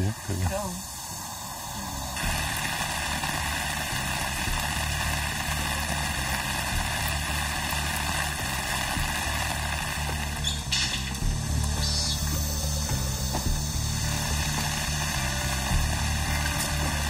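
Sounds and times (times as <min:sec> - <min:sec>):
rain on wet pavement: 0:01.4 - 0:17.0
low background music: 0:01.7 - 0:17.0.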